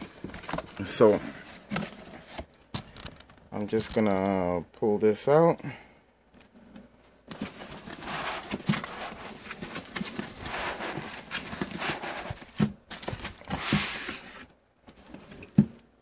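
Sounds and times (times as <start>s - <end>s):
cardboard scraping and rustling: 7.3s - 15.7s.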